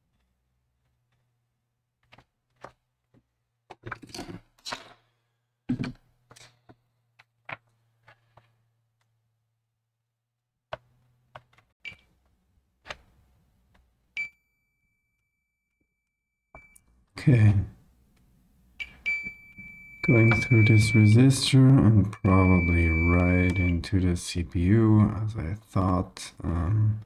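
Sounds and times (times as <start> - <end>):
multimeter continuity beep: 18.8 - 23.8.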